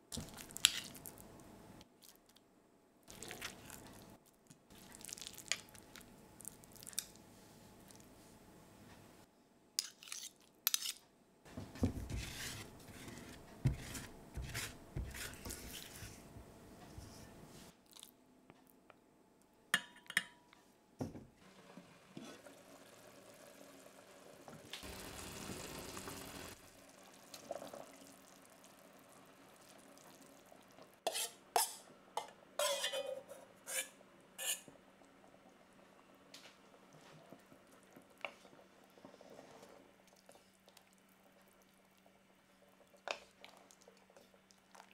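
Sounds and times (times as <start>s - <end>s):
metal spoon scraping a bowl: 31.1s - 34.7s.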